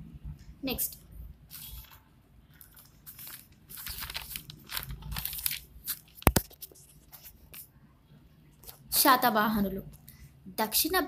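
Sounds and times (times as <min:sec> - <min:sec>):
crackling and rustling: 0:01.5 - 0:07.8.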